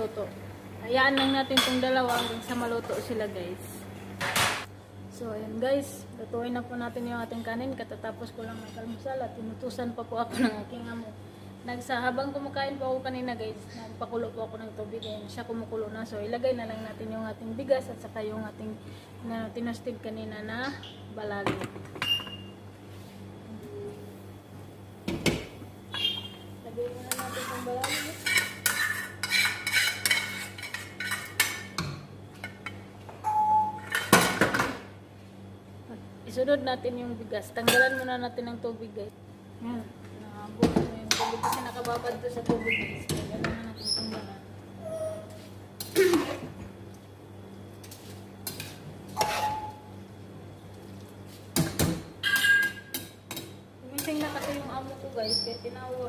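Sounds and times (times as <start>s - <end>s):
metal cookware clattering: 52.2s - 54.6s.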